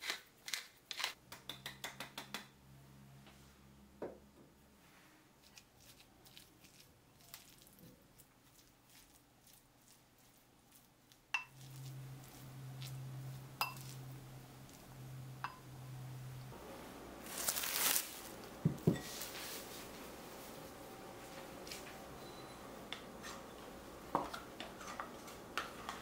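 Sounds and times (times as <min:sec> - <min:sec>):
spoon stirring mushy filling: 0:05.4 - 0:16.2, 0:22.9 - 0:26.0
spoon clinking against glass: 0:13.6 - 0:14.0.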